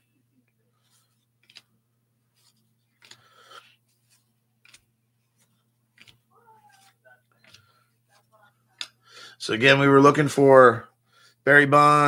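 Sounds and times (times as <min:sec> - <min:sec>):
cards rustling and flicking: 0:00.8 - 0:09.0.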